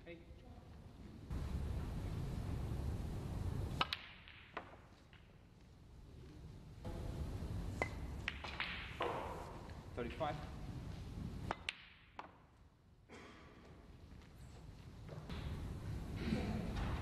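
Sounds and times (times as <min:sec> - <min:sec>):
low hum of hall: 0:00.0 - 0:17.0
snooker balls clicking: 0:03.7 - 0:05.8, 0:07.8 - 0:09.8, 0:11.4 - 0:12.6.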